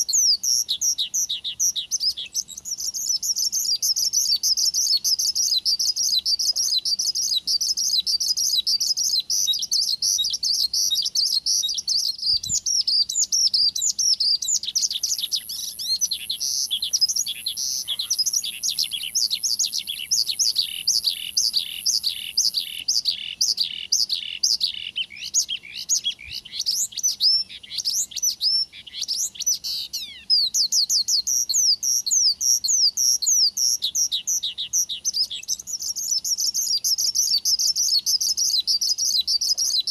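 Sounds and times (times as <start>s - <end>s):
bird song twittering: 0.0s - 39.9s.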